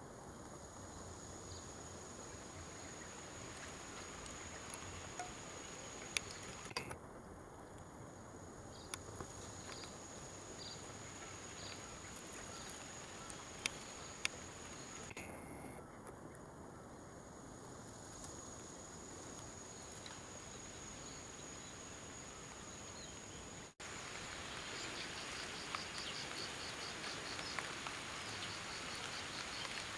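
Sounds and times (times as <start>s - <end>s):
sharp clicks: 6.2s - 7.0s.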